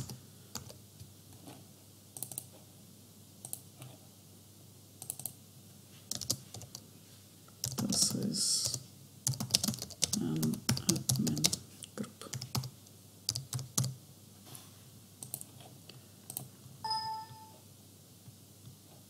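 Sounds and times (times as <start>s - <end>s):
typing on keyboard: 0.0s - 0.8s, 2.2s - 2.5s, 5.0s - 5.4s, 6.1s - 6.8s, 7.6s - 11.6s, 12.3s - 14.0s.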